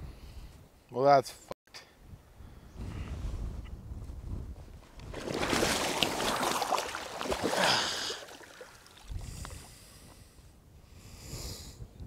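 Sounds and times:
heavy splashing of water: 5.0 - 9.6.

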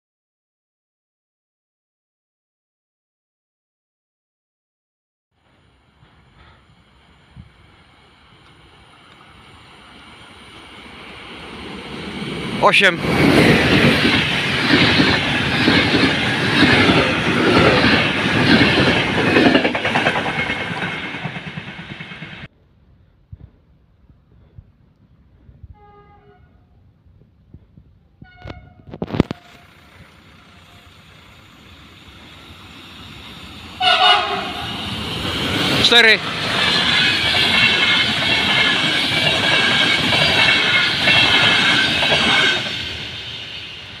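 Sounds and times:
train coaches rumbling past: 5.4 - 22.5, 27.6 - 44.0.

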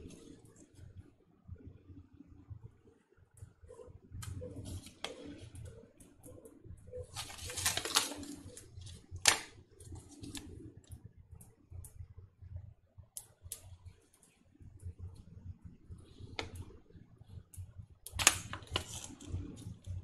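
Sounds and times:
plastic foil wrapper crinkling: 7.0 - 10.5, 18.1 - 19.8.

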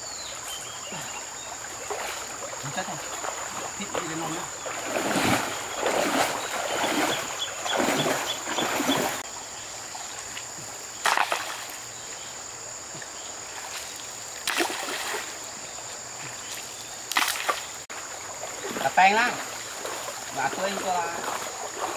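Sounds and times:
legs wading through water: 0.0 - 21.9
shallow river flowing: 0.0 - 21.9
hands splashing in water: 1.8 - 9.2, 11.0 - 11.8, 13.7 - 15.3, 17.1 - 17.7.

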